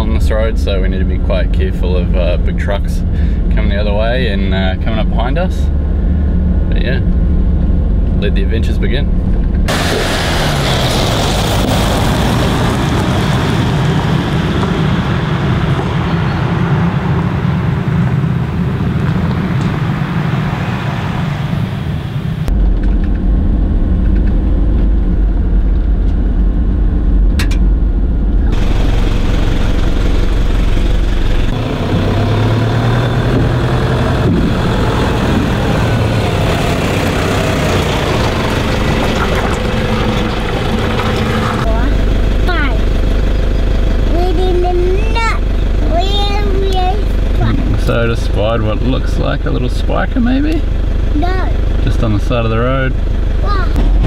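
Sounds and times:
muffled rumble inside cab: 0:00.0 - 0:54.0
vehicle engine: 0:00.0 - 0:54.0
tyres on gravel: 0:32.9 - 0:42.1.

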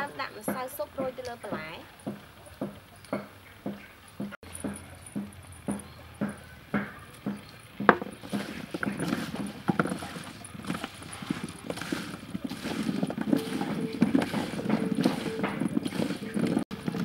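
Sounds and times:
vegetable pieces clattering on metal: 0:07.8 - 0:17.0.

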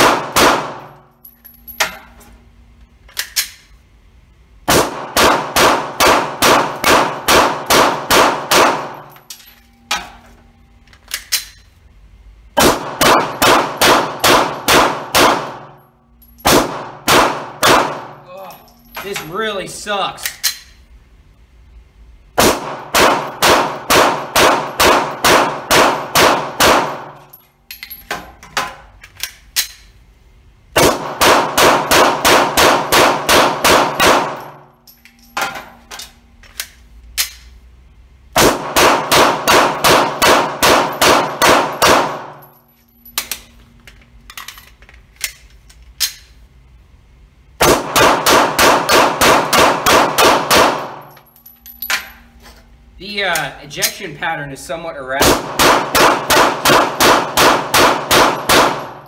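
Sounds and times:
pistol firing rapidly: 0:00.0 - 0:00.9, 0:04.7 - 0:09.0, 0:12.6 - 0:15.7, 0:16.5 - 0:18.2, 0:22.4 - 0:27.2, 0:30.8 - 0:34.5, 0:38.4 - 0:42.4, 0:47.6 - 0:51.0, 0:55.2 - 0:59.0.

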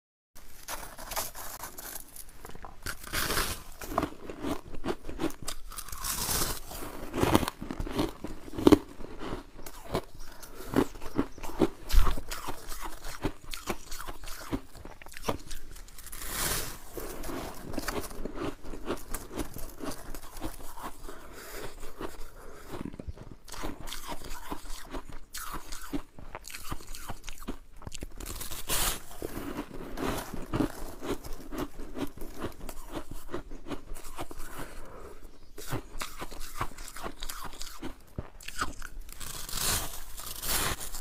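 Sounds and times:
frost crunching: 0:00.4 - 0:22.6, 0:35.7 - 0:41.0.

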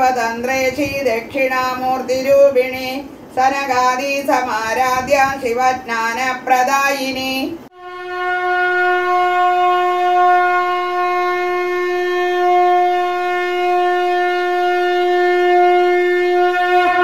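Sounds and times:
wind instrument long note: 0:07.7 - 0:17.0.

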